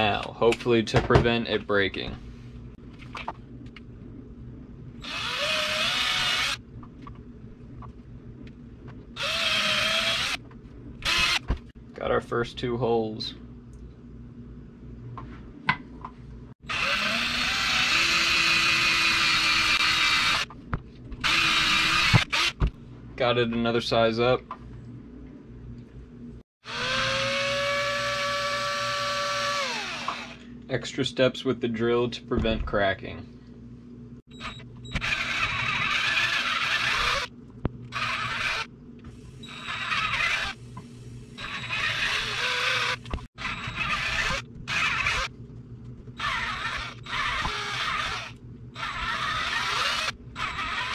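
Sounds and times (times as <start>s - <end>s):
electric drill boring into wood: 5.0s - 6.6s, 9.2s - 10.4s, 11.0s - 11.4s, 16.7s - 20.5s, 21.2s - 22.6s, 26.6s - 30.4s, 34.4s - 37.3s, 37.9s - 38.7s, 39.4s - 40.6s, 41.4s - 45.3s, 46.2s - 50.9s.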